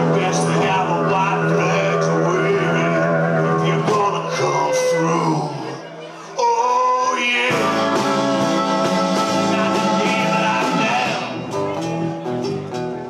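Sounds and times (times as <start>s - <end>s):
live rock band playing: 0.0s - 5.8s, 7.2s - 13.0s
electric and acoustic guitars: 0.0s - 13.0s.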